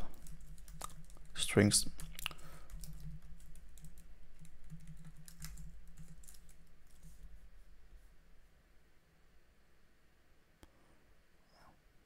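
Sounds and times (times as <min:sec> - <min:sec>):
computer keyboard typing: 0:00.1 - 0:07.2.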